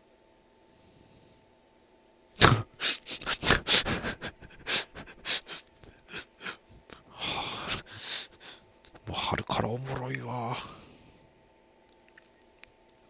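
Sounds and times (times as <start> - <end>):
man's stifled breathy laughter: 2.6 - 8.6.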